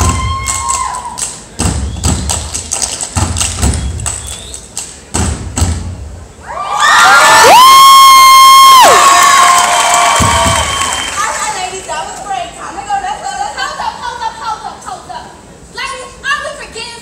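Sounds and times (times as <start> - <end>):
hand claps: 0.0 - 5.0
foot stomps: 1.6 - 4.5, 10.1 - 10.9
crowd cheering and screaming: 6.4 - 11.4.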